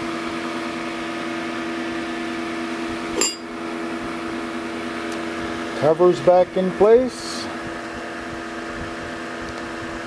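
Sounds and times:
fan humming: 0.0s - 10.0s
metallic clink of cover: 3.2s - 3.5s.

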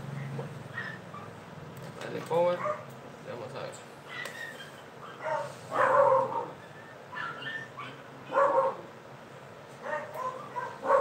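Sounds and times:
low background hum: 0.0s - 11.0s
dog barking: 0.7s - 1.4s, 2.5s - 2.9s, 5.0s - 8.9s, 9.8s - 11.0s.

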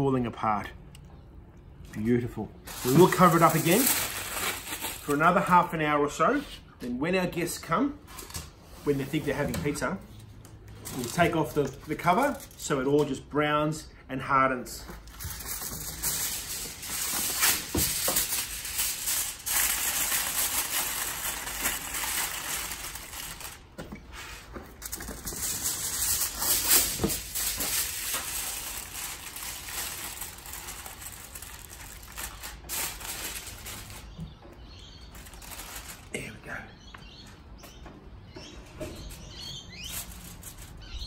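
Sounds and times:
aluminium foil crinkling: 2.6s - 5.4s, 10.8s - 12.7s, 14.9s - 23.8s, 24.6s - 36.2s, 39.2s - 41.0s.

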